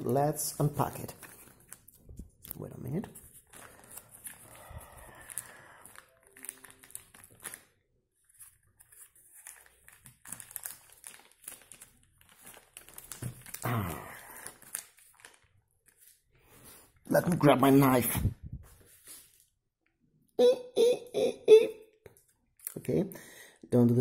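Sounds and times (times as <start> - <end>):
plastic mailer crinkling: 3.1 - 16.3.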